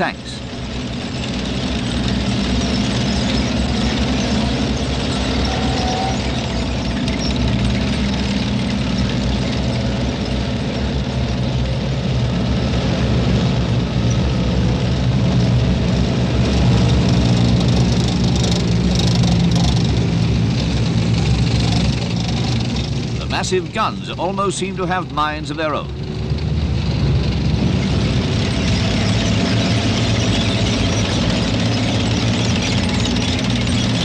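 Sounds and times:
tank engines droning: 0.0s - 34.0s.

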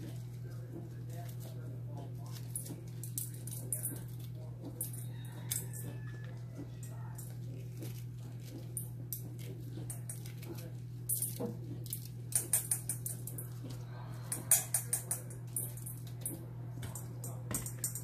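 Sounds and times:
steady low hum: 0.0s - 18.0s
seeds dropping into steel bowl: 6.8s - 18.0s.

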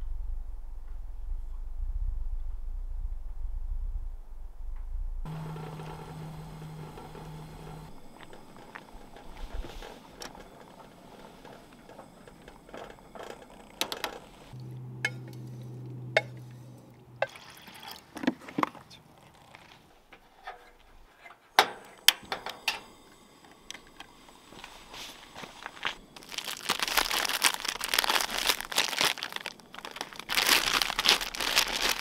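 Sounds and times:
pot of water boiling: 5.3s - 16.6s, 17.2s - 18.2s, 22.7s - 32.0s
utensil clinking against metal pots: 15.0s - 18.1s.

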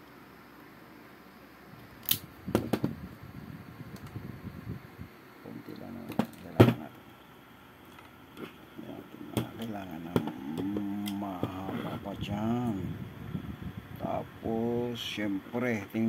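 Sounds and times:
wire tools clicking and snapping: 2.0s - 2.3s.

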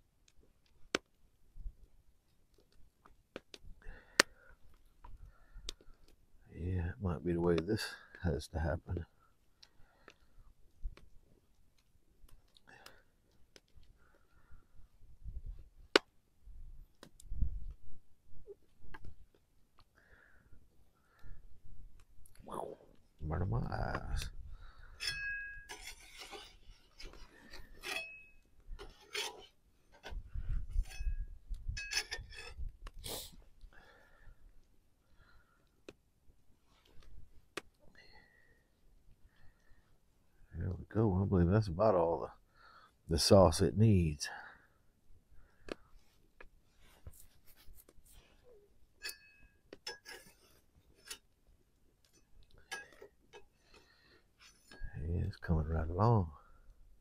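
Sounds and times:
metal spoon scraping a pot: 24.9s - 30.1s, 31.8s - 32.6s, 49.0s - 51.3s.

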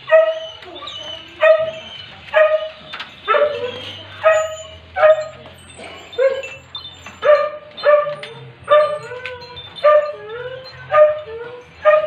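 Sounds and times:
dog barking in high yips: 0.0s - 10.2s, 10.8s - 12.0s
dog whining: 0.0s - 12.0s.

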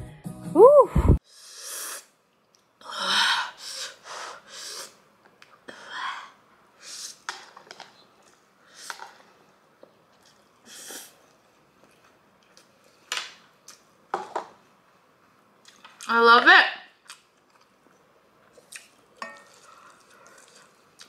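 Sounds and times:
noodles being slurped: 18.6s - 21.0s.

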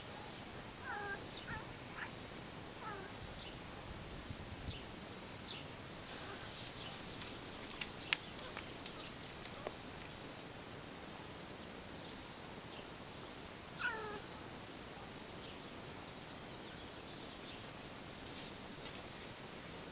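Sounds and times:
cat meowing: 13.8s - 14.2s.

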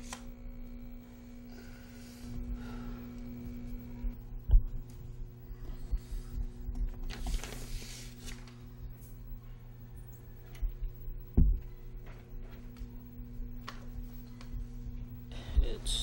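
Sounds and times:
steady low hum: 0.0s - 16.0s
short low thump: 11.3s - 11.7s.

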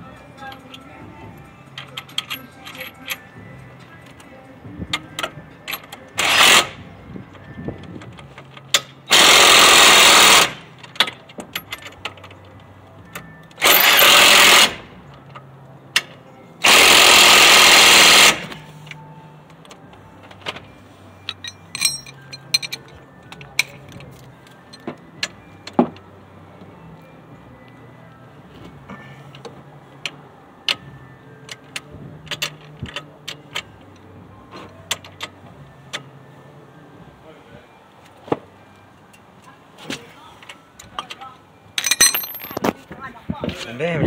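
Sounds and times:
impact wrench bursts: 9.1s - 10.6s, 13.6s - 14.8s, 16.6s - 18.5s
light clicks and tool clatter: 18.9s - 24.9s.

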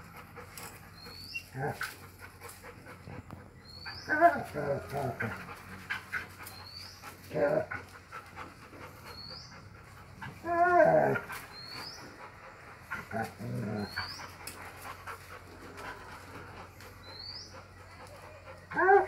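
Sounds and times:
dog whining: 10.2s - 12.2s, 18.2s - 19.0s.

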